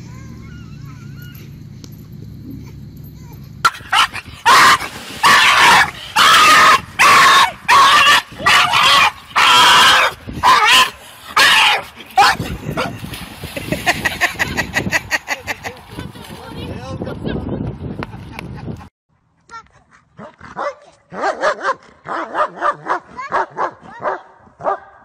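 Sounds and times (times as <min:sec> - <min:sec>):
dog yelping and whining: 0:00.2 - 0:01.6.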